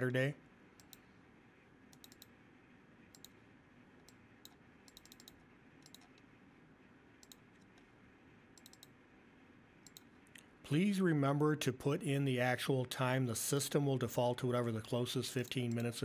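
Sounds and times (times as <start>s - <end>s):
low steady hiss: 0.0s - 16.0s
computer mouse clicks: 0.8s - 1.1s, 1.9s - 2.4s, 3.1s - 3.4s, 4.0s - 6.3s, 7.2s - 7.9s, 8.5s - 9.0s, 9.8s - 10.5s, 15.4s - 16.0s.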